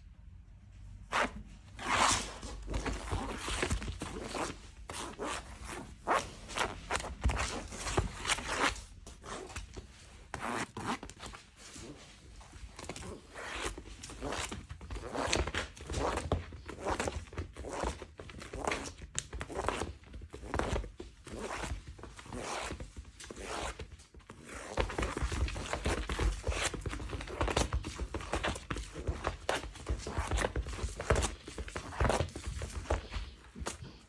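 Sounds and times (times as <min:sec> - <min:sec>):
scraping on a straw mat: 0:01.1 - 0:17.9.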